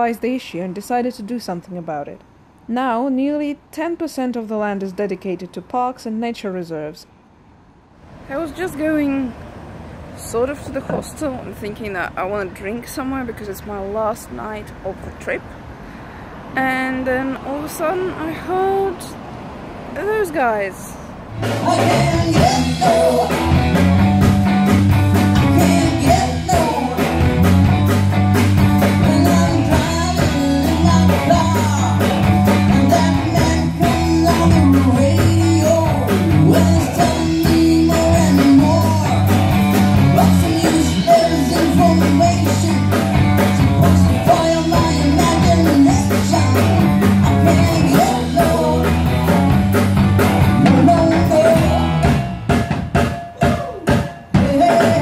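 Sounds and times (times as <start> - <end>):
electric guitars: 21.2 - 52.6, 53.9 - 55.0
drum kit: 21.3 - 55.0
person singing: 21.4 - 24.0, 25.2 - 27.5, 28.8 - 49.8, 50.4 - 52.2, 53.4 - 55.0.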